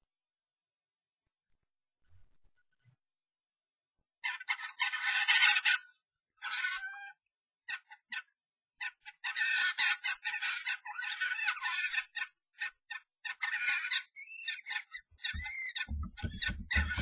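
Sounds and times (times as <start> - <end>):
starlings screeching squawks: 13.3 - 17.0
whistled bird notes: 14.2 - 17.0.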